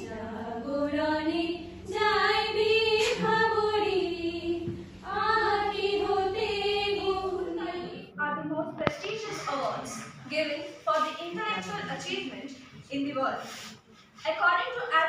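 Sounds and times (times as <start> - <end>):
women singing together: 0.0 - 8.1.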